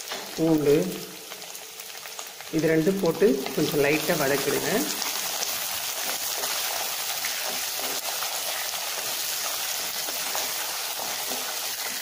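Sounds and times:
food sizzling in hot oil: 0.0 - 12.0
wooden spatula stirring: 4.3 - 12.0.

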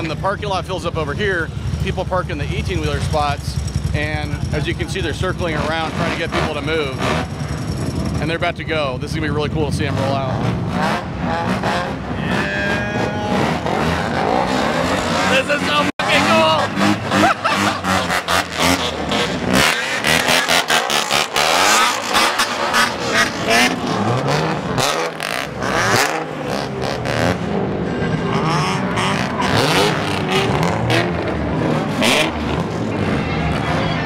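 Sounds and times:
car engines revving: 0.0 - 34.0.

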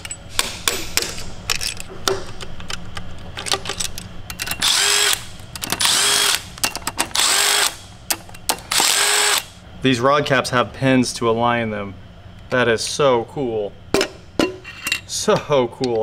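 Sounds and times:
power tool spinning bolts: 4.4 - 7.9, 8.6 - 9.6.

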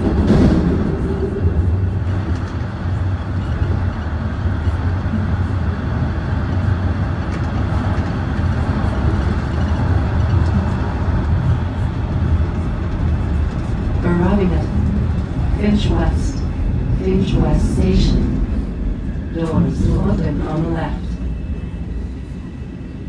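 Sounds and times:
subway train rumbling: 0.0 - 23.0.

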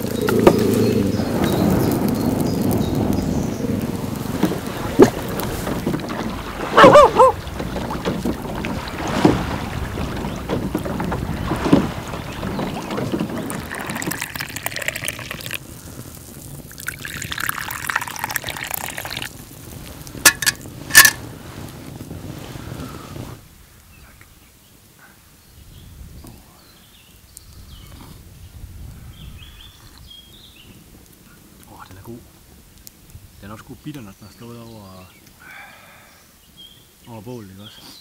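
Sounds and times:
wind: 0.0 - 38.0
small waves lapping: 3.8 - 21.2
metal kettle clinking: 20.3 - 21.2.

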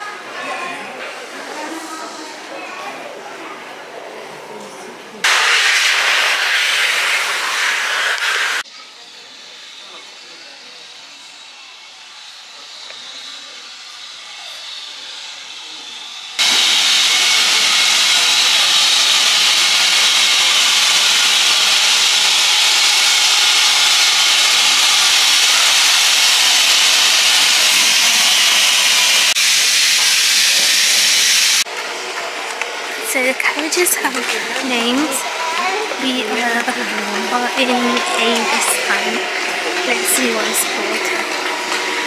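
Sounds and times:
steam locomotive hissing: 5.2 - 42.0.

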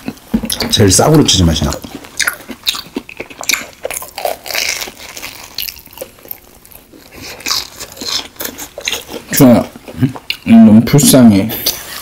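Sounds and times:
chewing crunchy fried food: 1.5 - 10.6.

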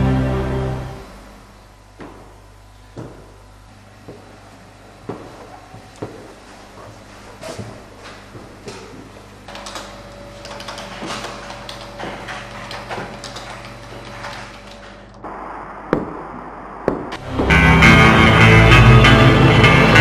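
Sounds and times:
office room hum: 0.0 - 20.0
shoe footstep on tiled floor: 2.0 - 3.4, 5.0 - 9.2.

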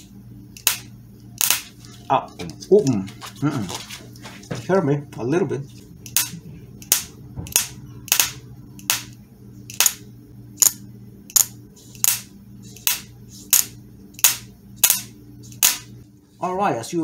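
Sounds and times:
sharp spark snaps: 0.5 - 1.8, 10.6 - 15.9.

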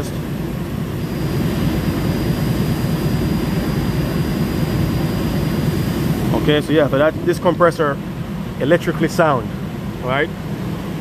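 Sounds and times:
high thin whine: 0.0 - 8.0
machinery roaring: 0.8 - 7.5.

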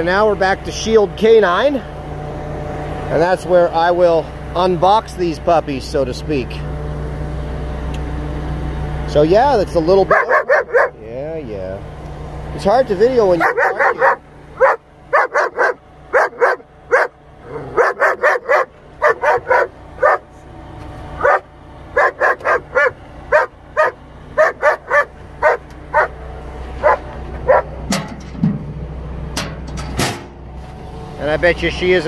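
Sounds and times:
dog barking: 10.1 - 11.0, 13.4 - 20.3, 21.2 - 26.1, 26.8 - 27.7.

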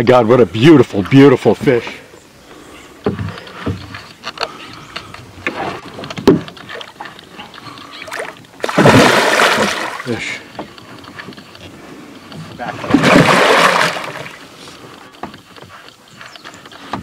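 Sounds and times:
fish splashing in water: 8.0 - 10.2, 12.8 - 14.5.

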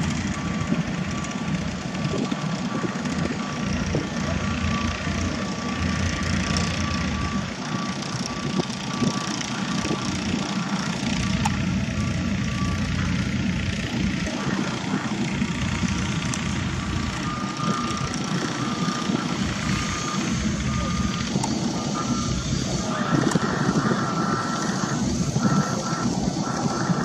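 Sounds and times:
machinery rumble: 0.0 - 27.0
wind: 0.0 - 27.0
backup alarm beeping: 0.3 - 27.0.

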